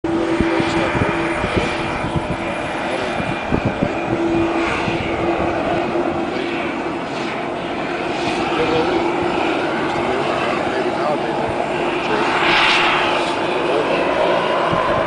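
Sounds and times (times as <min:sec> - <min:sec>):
helicopter engine running: 0:00.0 - 0:15.0
low buffeting: 0:00.0 - 0:15.0.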